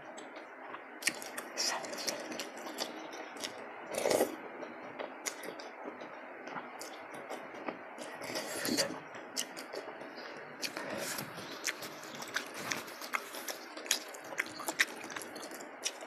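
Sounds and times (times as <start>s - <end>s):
wet mouth clicks and chewing: 1.0s - 4.3s, 5.0s - 5.7s, 6.5s - 10.0s, 10.6s - 16.0s
slurping noodles: 3.4s - 4.3s.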